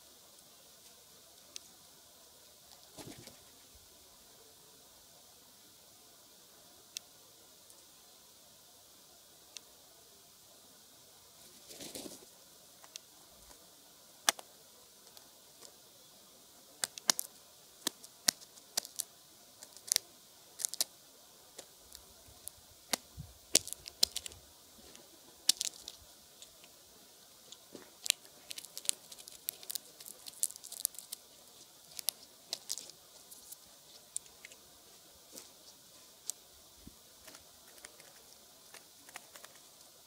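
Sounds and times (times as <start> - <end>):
wings fluttering: 2.7 - 3.8, 11.4 - 12.3
bird pecking and cracking: 16.8 - 20.9, 21.5 - 24.4, 25.4 - 26.8, 27.5 - 34.6, 37.2 - 39.7.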